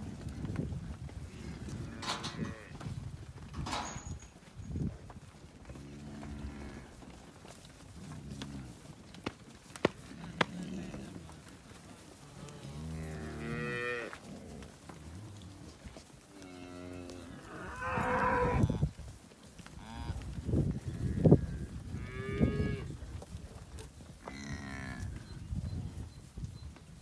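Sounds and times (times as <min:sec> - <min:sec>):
cows mooing: 0:12.3 - 0:15.7, 0:16.4 - 0:18.8.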